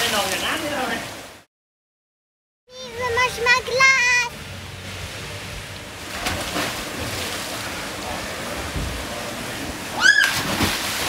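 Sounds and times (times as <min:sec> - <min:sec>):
rushing water: 0:00.0 - 0:01.5, 0:02.7 - 0:11.0
wind noise: 0:08.4 - 0:11.0.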